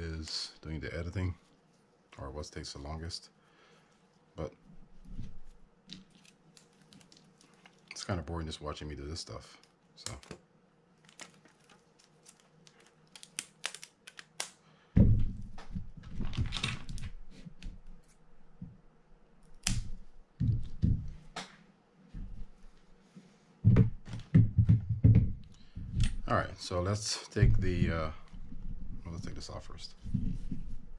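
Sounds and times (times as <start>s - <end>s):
heavier knocks and rustling: 15.0s - 17.1s, 20.4s - 21.3s, 23.6s - 26.3s.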